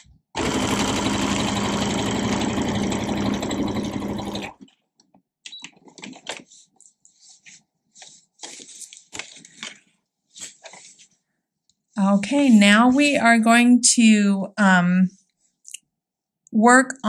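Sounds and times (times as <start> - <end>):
sewing machine running: 0.4 - 4.6.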